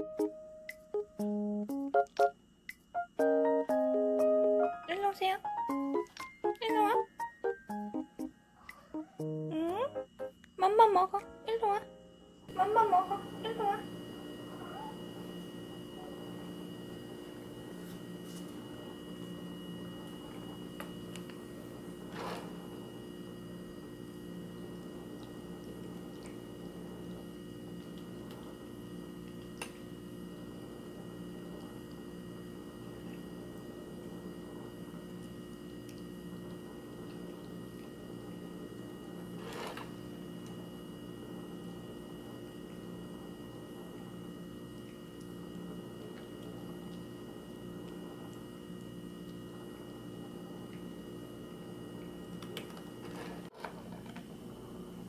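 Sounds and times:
steady hum with high tones: 0.0s - 53.0s.

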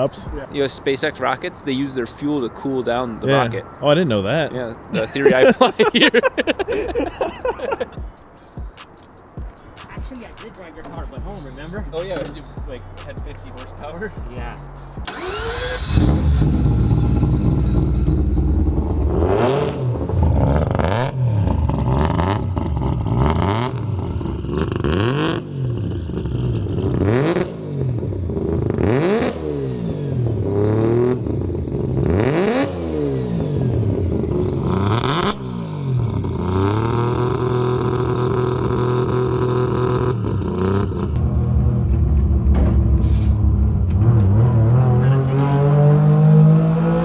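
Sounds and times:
rotary engine revving: 14.7s - 47.0s.

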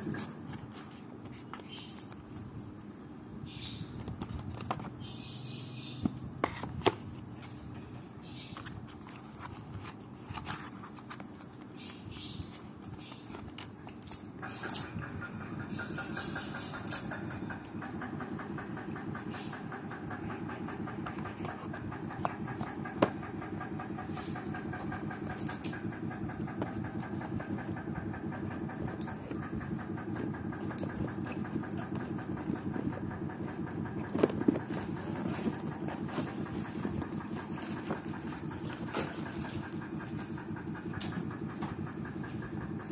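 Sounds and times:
machine drone with fast pulsing: 14.0s - 42.9s.

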